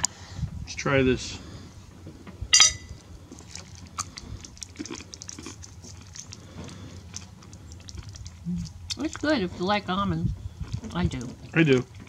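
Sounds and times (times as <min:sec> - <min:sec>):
crisp crunching while chewing: 0:03.2 - 0:09.4, 0:10.5 - 0:12.0
biting crunchy bar: 0:03.4 - 0:09.0.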